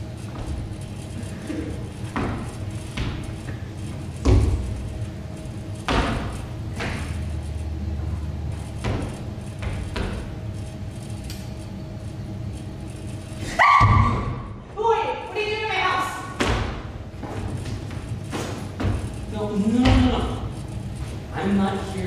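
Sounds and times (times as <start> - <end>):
thumps and knocks on stage: 4.2 - 4.7, 5.9 - 7.1, 16.4 - 17.4.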